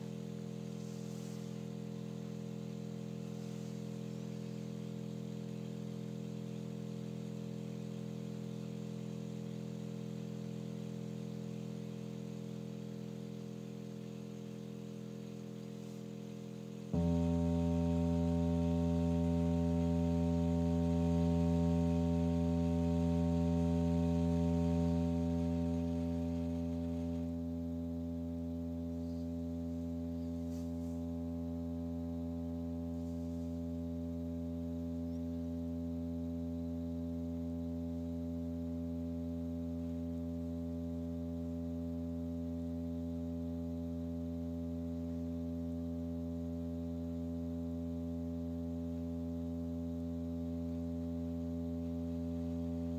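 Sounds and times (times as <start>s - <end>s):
low electronic tone: 17.0s - 27.7s.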